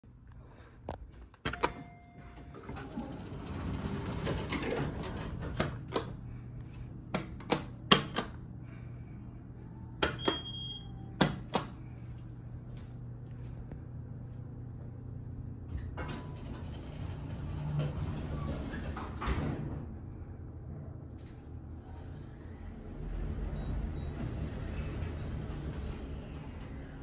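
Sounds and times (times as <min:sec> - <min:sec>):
steady low hum: 0:00.0 - 0:27.0
elevator buttons clicking: 0:01.4 - 0:02.6, 0:05.5 - 0:06.2, 0:07.1 - 0:08.4, 0:10.0 - 0:11.8.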